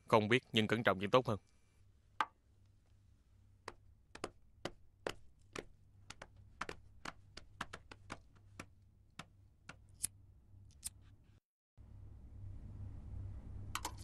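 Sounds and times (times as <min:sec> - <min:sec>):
faint low hum: 0:10.2 - 0:14.0.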